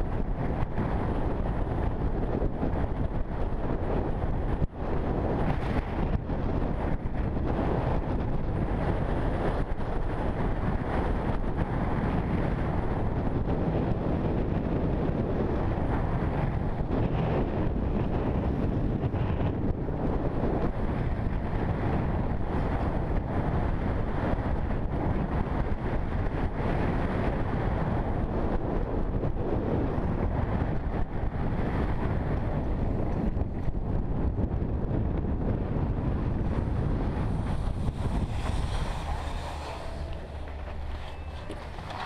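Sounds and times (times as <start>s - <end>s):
wind buffeting microphone: 0.0s - 42.0s
skis rushing over snow: 36.4s - 42.0s.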